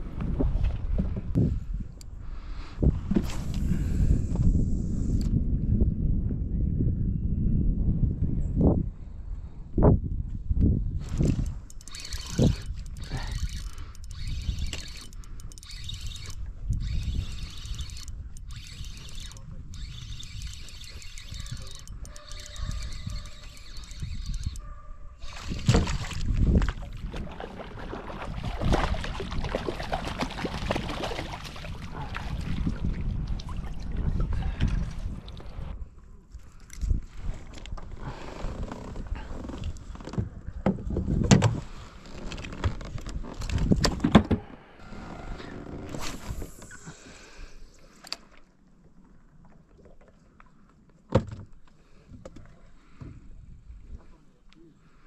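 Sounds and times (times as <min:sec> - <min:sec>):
wind rumble on microphone: 0:00.0 - 0:46.8
fishing gear clicking and knocking: 0:11.1 - 0:24.6.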